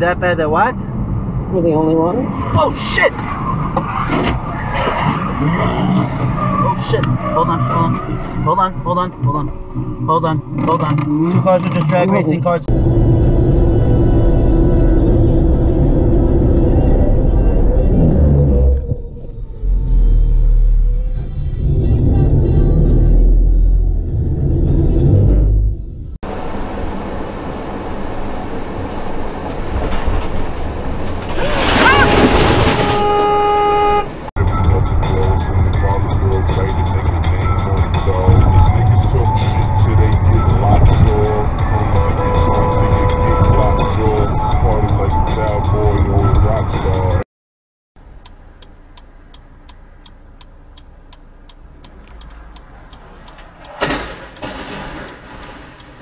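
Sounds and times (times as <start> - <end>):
road and engine noise: 0.0 - 47.2, 48.0 - 56.0
tyre squeals: 31.2 - 34.1
car horn blaring: 31.7 - 34.3, 41.0 - 44.3
brakes hissing: 48.0 - 56.0
car engine idling: 48.0 - 56.0
turn signal ticking: 48.0 - 56.0.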